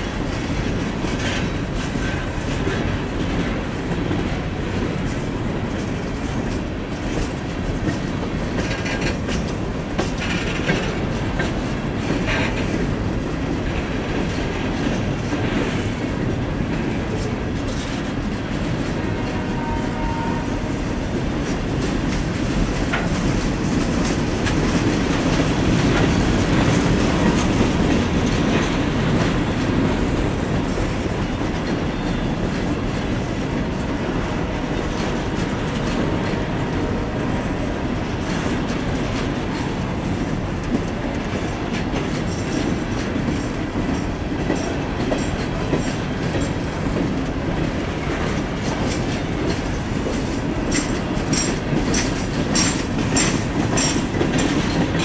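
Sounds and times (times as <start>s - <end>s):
freight train rolling past: 0.0s - 55.0s
wheels clicking over track joints: 38.2s - 55.0s.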